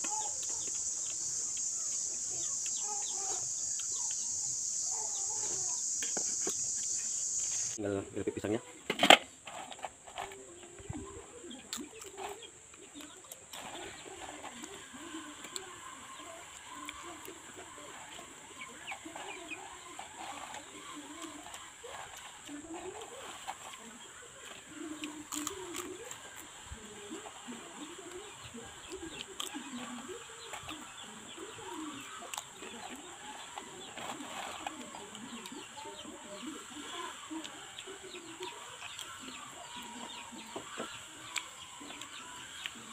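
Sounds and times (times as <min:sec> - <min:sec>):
chickens clucking: 0:00.0 - 0:42.9
dove cooing: 0:10.2 - 0:42.9
crunching crisp chips: 0:11.4 - 0:42.9.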